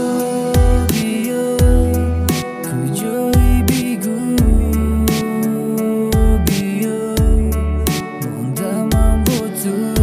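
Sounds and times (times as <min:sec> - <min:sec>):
deep electronic bass sliding: 0:00.6 - 0:01.0, 0:01.6 - 0:02.4, 0:03.4 - 0:03.7, 0:04.4 - 0:05.1.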